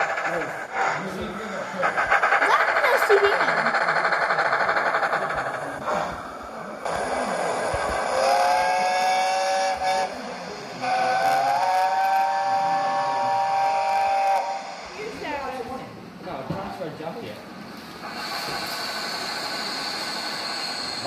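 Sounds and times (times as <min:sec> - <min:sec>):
steam locomotive chime whistle: 0:11.4 - 0:14.7.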